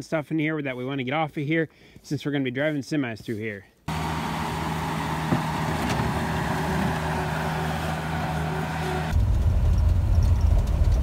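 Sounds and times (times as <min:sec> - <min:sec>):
diesel engine humming: 0:03.9 - 0:11.0
vehicle driving rumble: 0:03.9 - 0:11.0.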